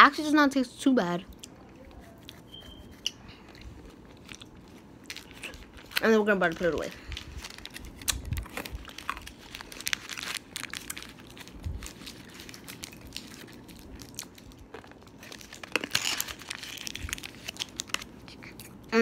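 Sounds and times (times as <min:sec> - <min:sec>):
wrapper crinkling in fingers: 0:04.1 - 0:18.8.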